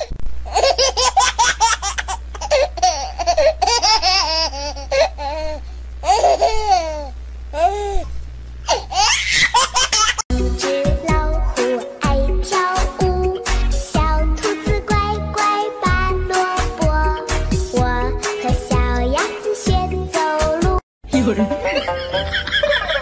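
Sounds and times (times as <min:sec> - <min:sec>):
music: 0:10.3 - 0:22.8.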